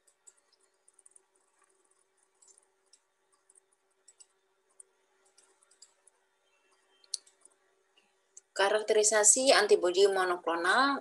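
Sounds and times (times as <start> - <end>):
computer mouse clicks: 0.0 - 7.6
faint steady hum: 0.0 - 11.0.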